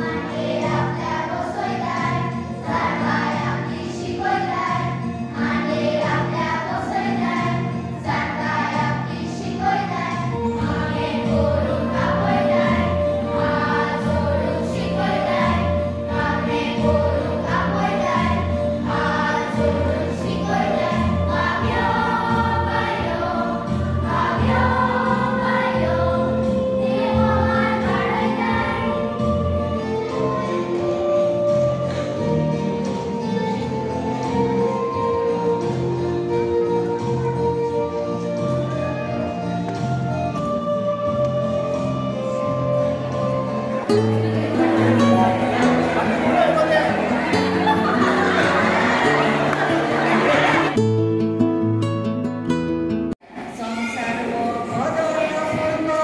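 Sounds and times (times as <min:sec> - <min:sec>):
choir singing religious song: 0:00.0 - 0:32.6, 0:40.2 - 0:50.8
instrumental accompaniment: 0:00.0 - 0:53.2.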